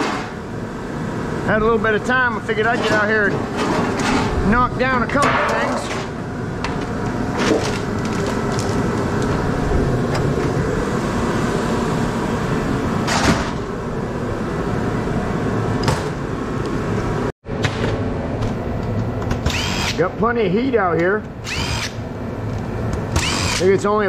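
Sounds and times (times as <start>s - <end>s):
heater blower running: 0.0s - 24.0s.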